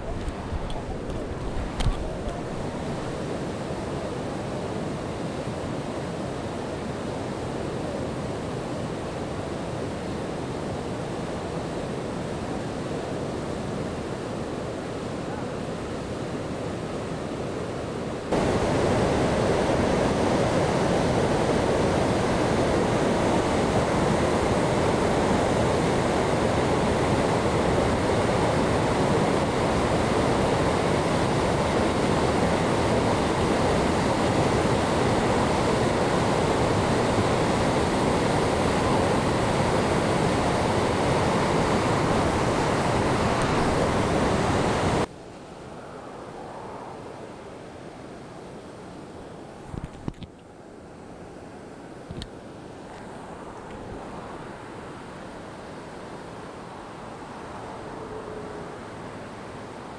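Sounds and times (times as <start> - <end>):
floodwater rushing over rapids: 0.0 - 45.1.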